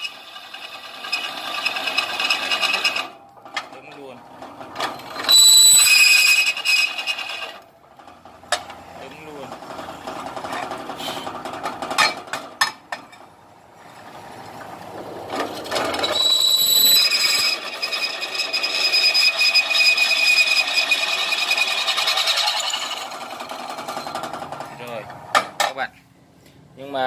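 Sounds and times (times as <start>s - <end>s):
drill bit squealing in steel: 0.0s - 3.2s, 5.0s - 7.6s, 15.9s - 23.2s
drill press motor: 0.0s - 3.2s.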